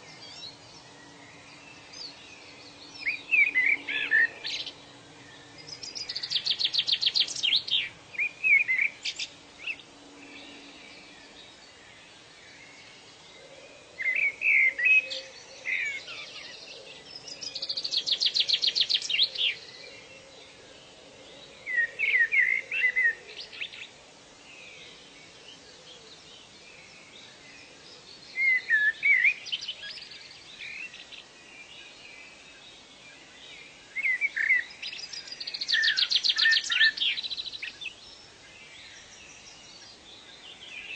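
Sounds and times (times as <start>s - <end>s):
faint steady hiss: 0.0s - 40.9s
songbirds singing: 0.0s - 40.9s.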